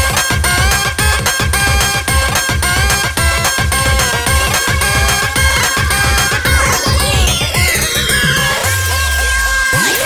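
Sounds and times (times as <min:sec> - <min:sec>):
heavy bass beat: 0:00.0 - 0:09.5
electronic dance music: 0:00.0 - 0:10.0
synth melody: 0:03.2 - 0:08.9.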